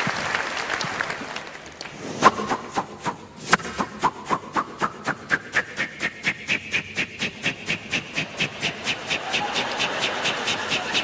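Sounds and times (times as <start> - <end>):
audience applause: 0.0 - 1.9, 9.2 - 11.0
steady rhythmic clicking: 2.2 - 11.0.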